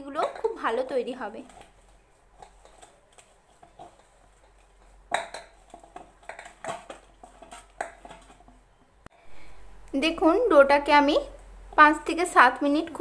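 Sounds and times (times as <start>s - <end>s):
dough squishing and slapping: 0.0s - 8.8s.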